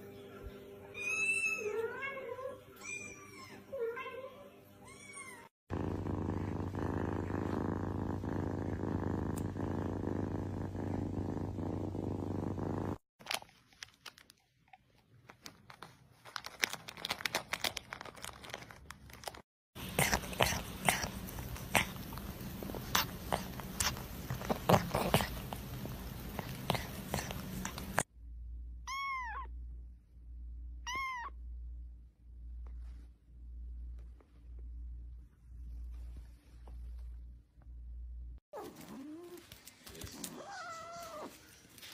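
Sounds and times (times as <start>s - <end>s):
cat purring: 5.7s - 13.0s, 19.8s - 28.1s
kitten eating with crunches: 13.2s - 28.1s.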